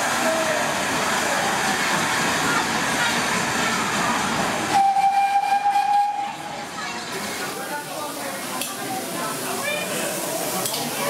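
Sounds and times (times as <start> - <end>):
rush of steam: 0.0 - 11.0
steam whistle blast: 4.7 - 6.4.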